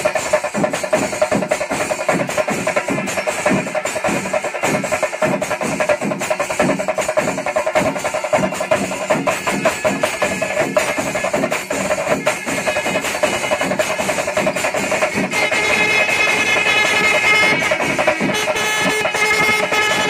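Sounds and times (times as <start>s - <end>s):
drums beaten with sticks: 0.0s - 20.0s
hand cymbals clashing: 0.0s - 20.0s.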